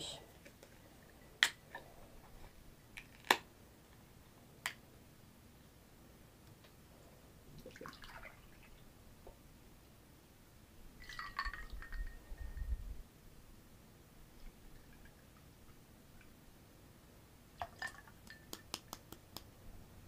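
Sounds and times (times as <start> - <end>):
juice pouring: 7.6 - 8.8, 11.0 - 12.2, 17.6 - 18.4.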